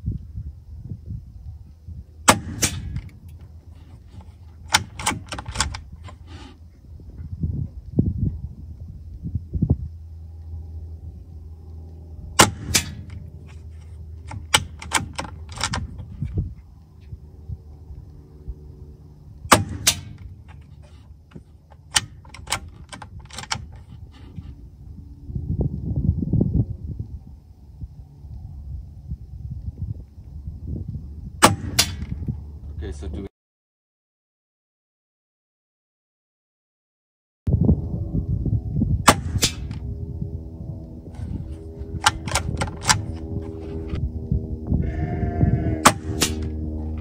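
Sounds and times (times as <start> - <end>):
wind rumble on microphone: 0.0 - 33.3, 37.5 - 47.0
air rifle shot crack: 2.3 - 3.1, 12.4 - 13.1, 19.5 - 20.3, 31.4 - 32.1, 39.0 - 39.8, 45.8 - 46.5
air rifle mechanical clicks: 2.3 - 6.5, 11.6 - 16.9, 19.5 - 24.4, 41.2 - 44.0
cocking lever clicks: 4.2 - 6.2, 14.2 - 16.2, 21.3 - 23.8, 42.0 - 43.3.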